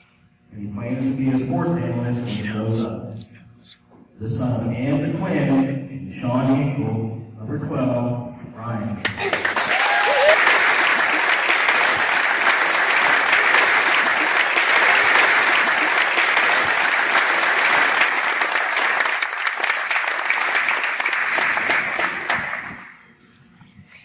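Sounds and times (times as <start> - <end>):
crowd clapping: 9.0 - 23.0.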